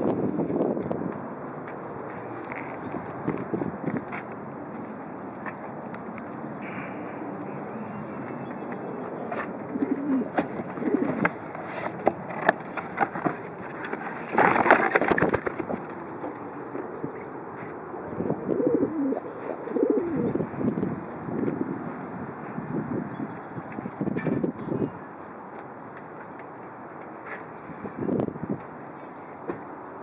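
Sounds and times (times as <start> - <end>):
pigeon cooing: 6.6 - 11.4, 18.4 - 20.4
cardboard rustle and scrape: 10.4 - 16.0.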